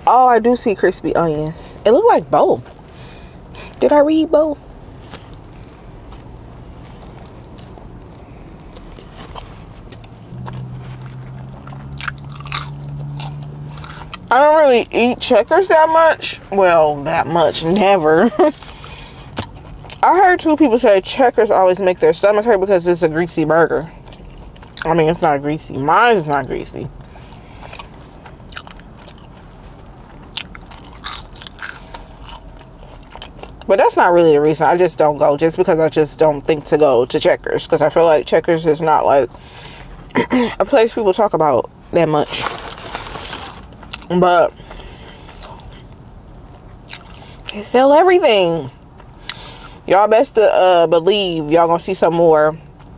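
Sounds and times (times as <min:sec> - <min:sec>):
low steady hum: 0:00.0 - 0:52.9
crisp crunches: 0:05.0 - 0:14.3, 0:27.0 - 0:33.7, 0:42.2 - 0:45.9
person chewing food: 0:05.0 - 0:14.3, 0:18.4 - 0:20.0, 0:23.8 - 0:24.9, 0:27.0 - 0:33.7, 0:42.8 - 0:47.5, 0:48.8 - 0:49.8.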